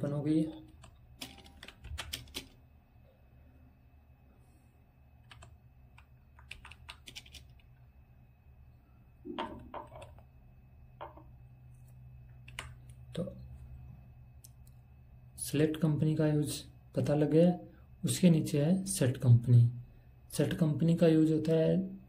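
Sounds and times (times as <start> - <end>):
faint low hum: 0.0 - 22.0
keyboard keys clicking: 0.6 - 2.6, 5.2 - 7.6, 12.4 - 13.0.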